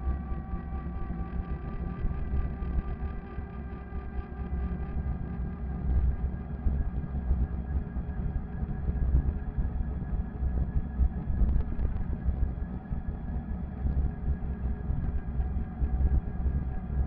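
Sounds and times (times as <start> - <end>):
wind rumble on microphone: 5.0 - 17.0.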